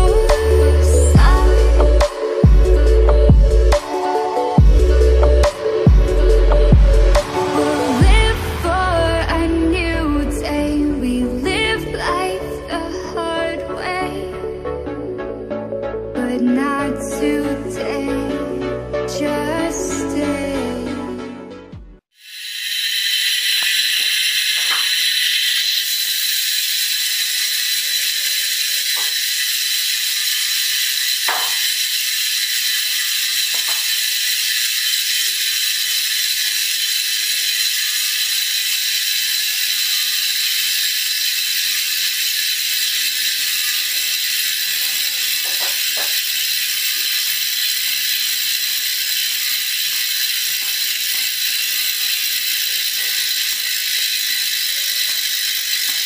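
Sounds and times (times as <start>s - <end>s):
bicycle freehub ratcheting buzz: 0.0s - 8.4s, 22.1s - 56.0s.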